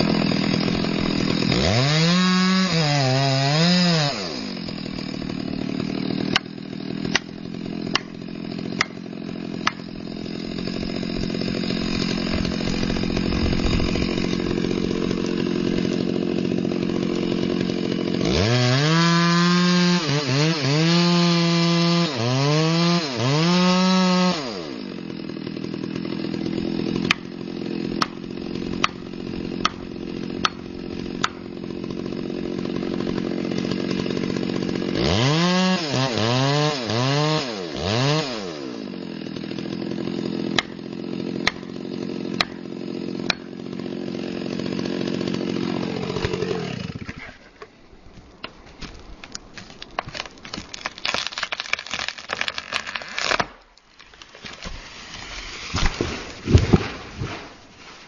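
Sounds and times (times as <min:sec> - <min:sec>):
chainsaw idling and revving: 0:00.0 - 0:48.0, 0:48.6 - 0:58.0
hammer knocking felling wedge: 0:04.7 - 0:17.6, 0:26.8 - 0:31.4, 0:40.6 - 0:42.6, 0:55.7 - 0:57.6.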